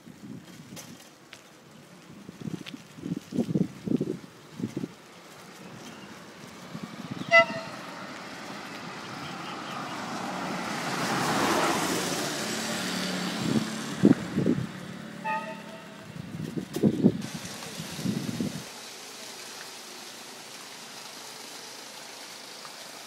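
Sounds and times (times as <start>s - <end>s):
wind bumps on microphone: 2.1s - 5.0s, 13.3s - 14.8s, 16.0s - 18.7s
motor scooter passing: 5.5s - 16.2s
vehicle horn beeping: 7.2s - 7.9s, 15.2s - 16.0s.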